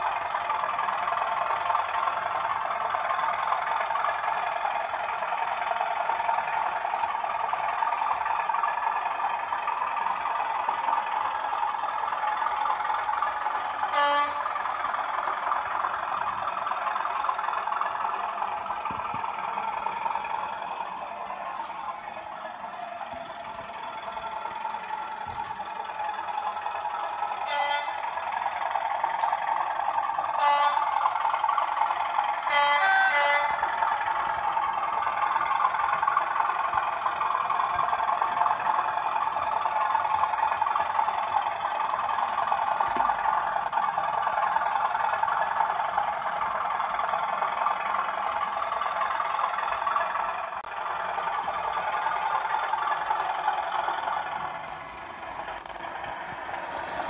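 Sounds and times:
diesel engine through small speaker: 0:00.0 - 0:57.0
locomotive horn blasts: 0:13.7 - 0:15.6, 0:27.3 - 0:28.4, 0:29.2 - 0:31.3, 0:32.3 - 0:34.2.

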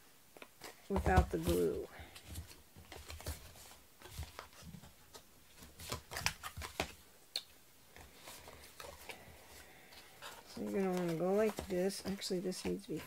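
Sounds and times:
paper rustles and taps: 0:00.4 - 0:07.0, 0:10.2 - 0:13.0.

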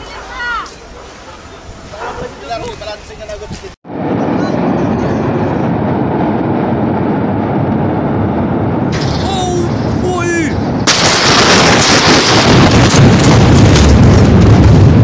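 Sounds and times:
steady loud rumble: 0:01.0 - 0:15.0
explosion blast wave: 0:03.9 - 0:15.0.

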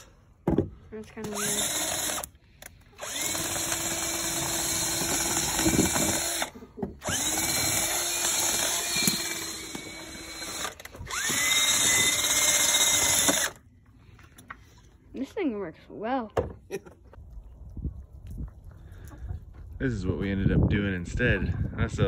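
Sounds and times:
cordless drill whining: 0:01.2 - 0:13.6.

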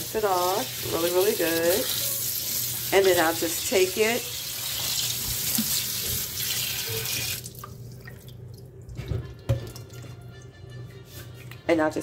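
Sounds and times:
water dripping: 0:07.3 - 0:10.1.

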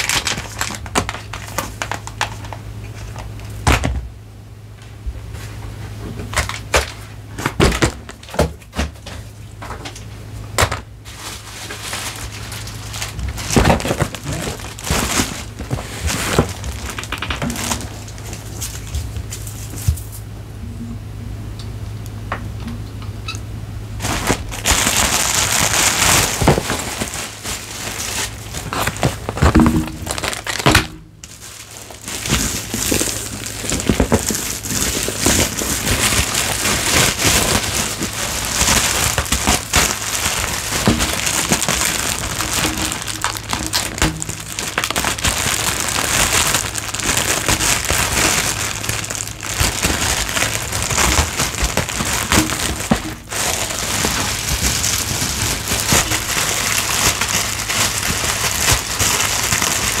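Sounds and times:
packaging crinkling: 0:00.0 - 0:03.8, 0:06.2 - 0:20.2, 0:24.0 - 1:00.0
small clicks and crackles: 0:24.1 - 1:00.0.

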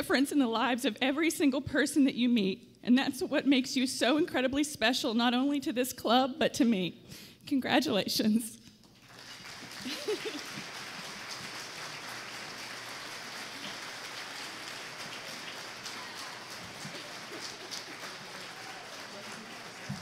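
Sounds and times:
audience applauding: 0:08.9 - 0:20.0.

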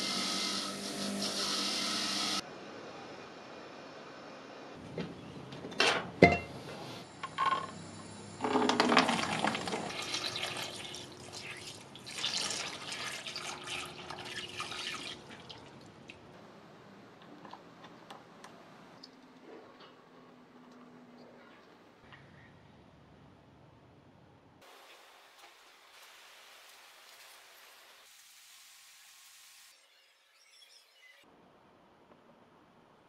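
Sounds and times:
water pouring into plastic tub: 0:08.5 - 0:15.9.

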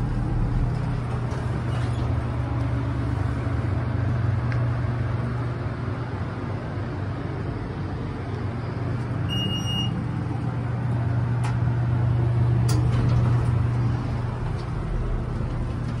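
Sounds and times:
elevator low hum: 0:00.0 - 0:16.0
short electronic beep: 0:09.3 - 0:10.0.

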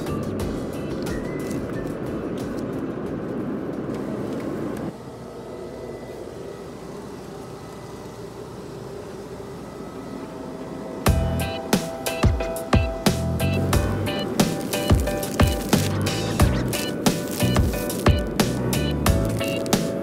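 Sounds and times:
airliner cabin rumble: 0:00.0 - 0:05.4
faint steady tones: 0:00.0 - 0:20.0
quiet aircraft hum: 0:00.0 - 0:20.0.

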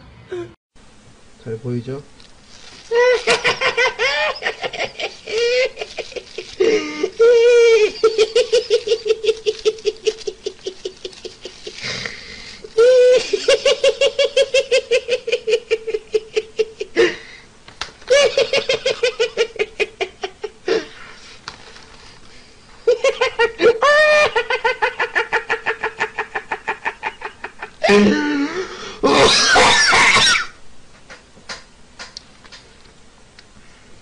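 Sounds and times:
man laughing helplessly: 0:02.9 - 0:17.3, 0:18.1 - 0:20.9, 0:22.8 - 0:28.4.

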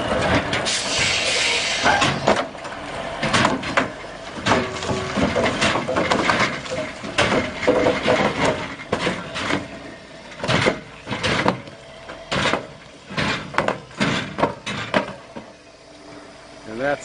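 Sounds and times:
concrete pipes knocking and banging: 0:03.2 - 0:15.6.

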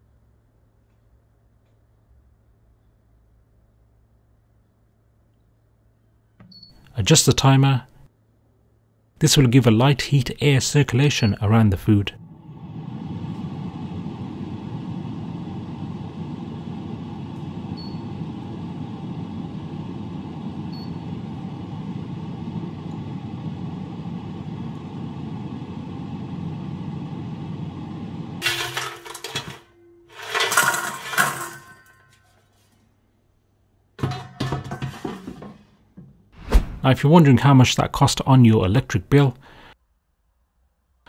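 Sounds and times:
air fryer fan running: 0:11.9 - 0:32.1, 0:34.0 - 0:35.6
basket drawer clattering: 0:28.4 - 0:31.9.

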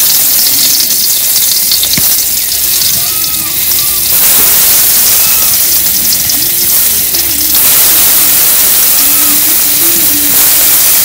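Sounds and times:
tomatoes sizzling in hot oil: 0:00.0 - 0:11.0.

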